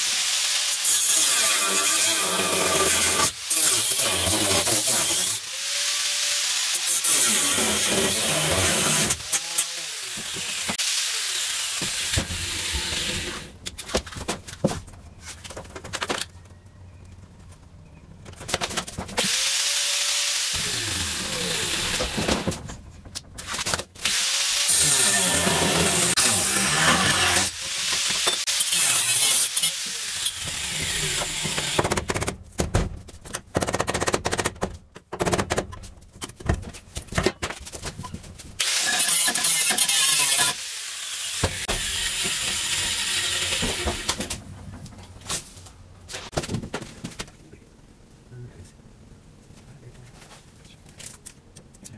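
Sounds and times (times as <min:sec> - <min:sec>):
power tool cutting sheet metal: 0:00.0 - 0:13.5, 0:19.2 - 0:22.6, 0:24.0 - 0:31.9, 0:38.6 - 0:44.3
power tool whirring: 0:19.2 - 0:22.5, 0:24.0 - 0:31.8.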